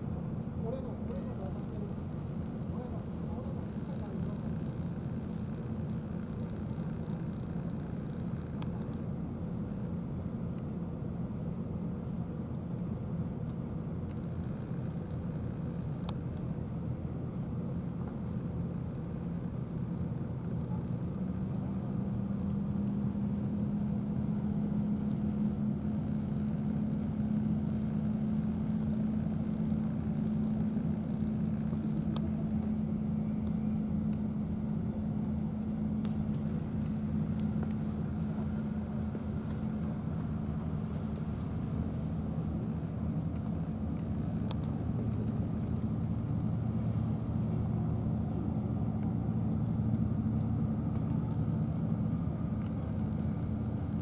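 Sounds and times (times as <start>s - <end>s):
distant vehicle engines droning: 0.0s - 54.0s.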